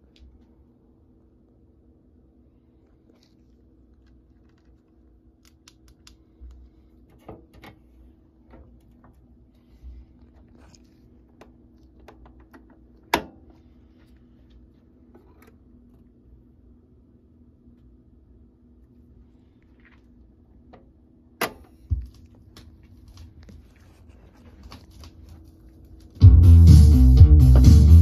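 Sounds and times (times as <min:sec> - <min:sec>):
low steady hum: 0:00.0 - 0:28.0
faint clicks and handling noises: 0:02.9 - 0:16.2.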